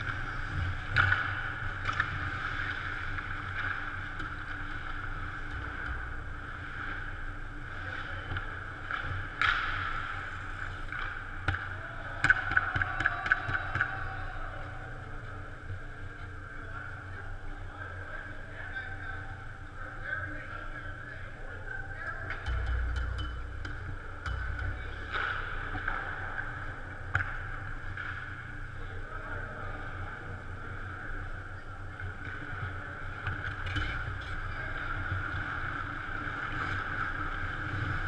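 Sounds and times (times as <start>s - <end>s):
hockey sticks and puck clacking: 0.0s - 6.1s, 8.2s - 14.2s, 22.3s - 28.4s, 33.2s - 38.0s
arena hum: 0.0s - 38.0s.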